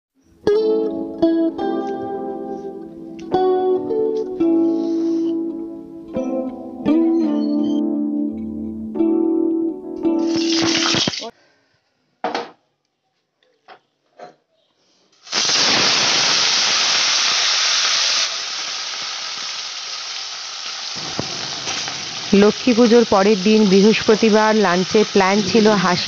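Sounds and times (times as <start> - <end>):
plucked-string tune: 0.4 - 10.7
fish sizzling in hot oil: 10.3 - 11.3, 15.2 - 26.0.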